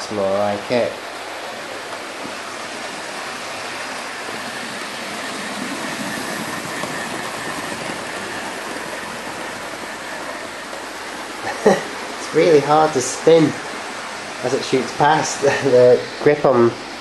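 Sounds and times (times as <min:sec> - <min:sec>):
wheels rumbling over rails: 0:00.0 - 0:17.0.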